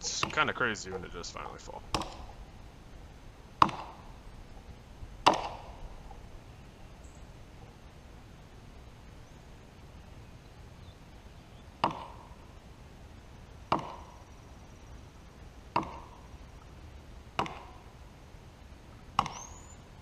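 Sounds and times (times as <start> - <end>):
axe chopping tree trunk: 1.9 - 2.4, 3.6 - 4.1, 5.2 - 5.8, 11.8 - 12.3, 13.7 - 14.2, 15.7 - 16.2, 17.4 - 17.8, 19.2 - 19.5.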